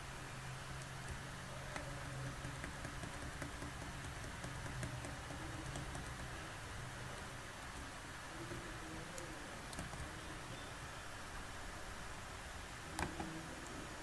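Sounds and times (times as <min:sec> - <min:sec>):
steady low hum: 0:00.0 - 0:14.0
keyboard keys clicking: 0:00.8 - 0:06.4.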